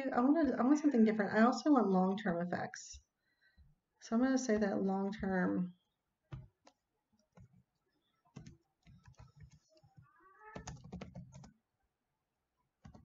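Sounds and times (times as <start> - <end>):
computer keyboard typing: 8.3 - 11.6.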